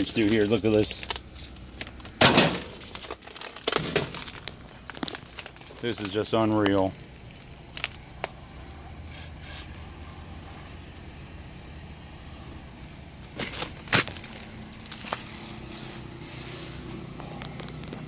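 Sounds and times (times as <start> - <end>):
sharp clicks and crunches: 0.0 - 8.4, 13.3 - 15.6, 16.4 - 18.0
low rumble of road traffic: 0.0 - 18.0.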